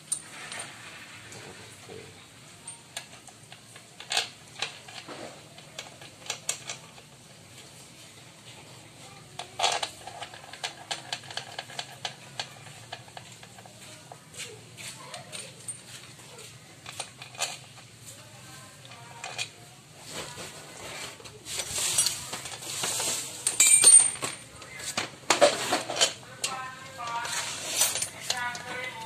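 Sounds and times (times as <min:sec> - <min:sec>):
metal clinks: 0:23.4 - 0:24.7.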